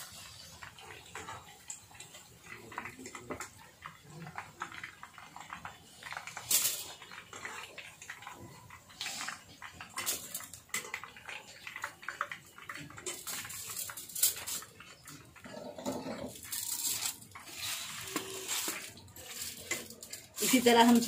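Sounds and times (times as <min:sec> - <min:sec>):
crackling of hot oil: 0:00.0 - 0:21.0
wire skimmer clattering: 0:12.9 - 0:21.0.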